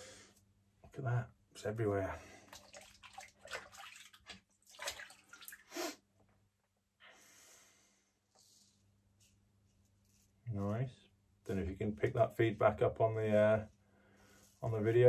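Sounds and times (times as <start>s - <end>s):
water splashing in a basin: 2.3s - 5.7s.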